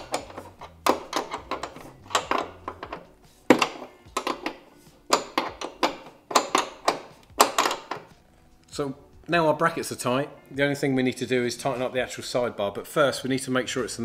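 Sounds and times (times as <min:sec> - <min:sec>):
spanner clicking on nuts: 0:00.0 - 0:08.1.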